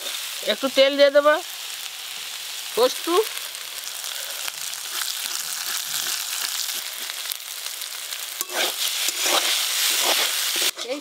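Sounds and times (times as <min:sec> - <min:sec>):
greens sizzling in oil: 0:00.0 - 0:11.0
metal spatula scraping: 0:04.8 - 0:07.4, 0:08.3 - 0:11.0.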